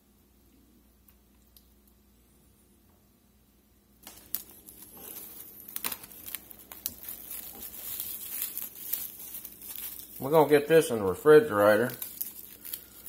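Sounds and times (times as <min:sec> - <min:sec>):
plastic cling wrap crinkling: 0:04.0 - 0:13.0.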